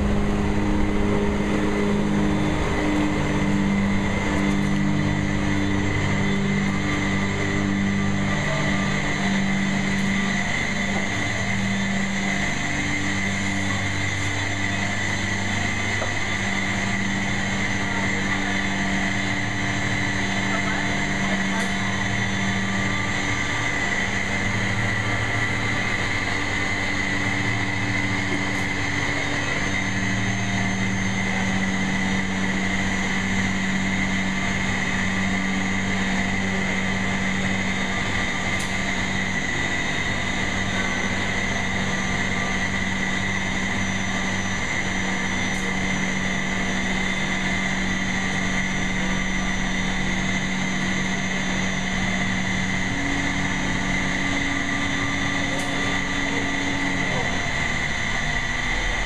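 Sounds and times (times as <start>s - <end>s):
crane engine droning: 0.0s - 59.0s.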